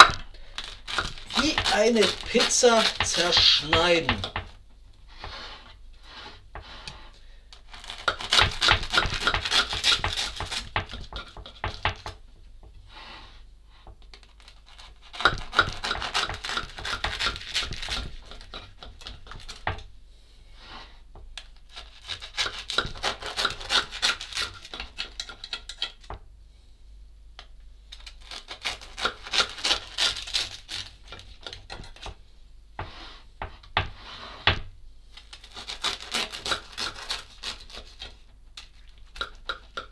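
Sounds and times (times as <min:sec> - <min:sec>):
knife sawing through bread: 0:00.6 - 0:04.0, 0:05.1 - 0:07.1, 0:07.7 - 0:10.8, 0:14.3 - 0:19.6, 0:21.7 - 0:25.1, 0:28.2 - 0:31.6, 0:35.4 - 0:38.2.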